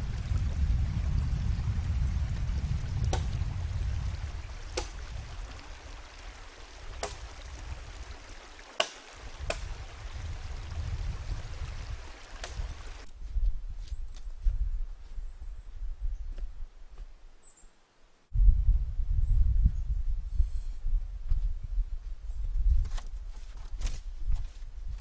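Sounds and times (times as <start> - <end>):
stream flowing: 0.0 - 13.1
axe chopping wood: 3.1 - 3.4, 4.7 - 5.1, 7.0 - 7.3, 8.8 - 9.8, 12.4 - 12.7.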